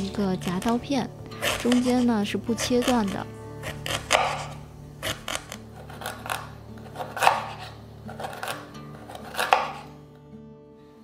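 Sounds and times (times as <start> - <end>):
knife chopping on wooden board: 2.8 - 9.9.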